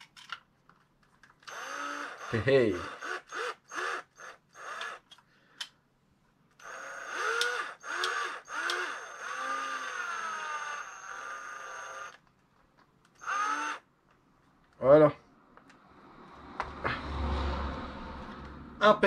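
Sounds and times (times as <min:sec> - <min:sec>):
cordless drill motor whine: 0:01.5 - 0:05.0, 0:06.6 - 0:12.2, 0:13.2 - 0:13.9.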